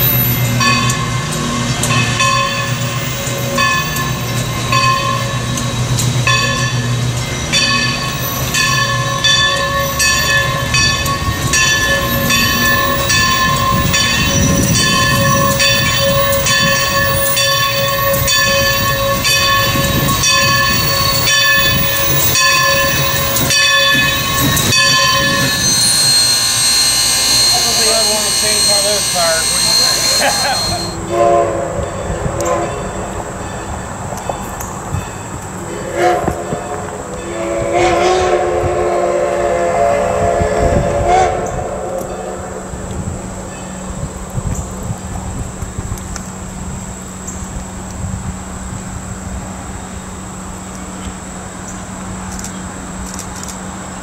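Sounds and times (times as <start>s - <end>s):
locomotive bell ringing: 0.0s - 37.6s
train cars rumbling: 0.0s - 54.0s.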